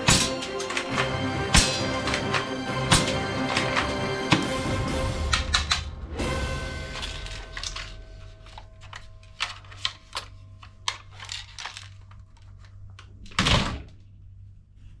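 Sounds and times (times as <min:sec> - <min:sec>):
plastic toy guns clattering: 0:00.0 - 0:04.5, 0:06.9 - 0:13.3
plastic toy rifle clicking: 0:09.4 - 0:12.8.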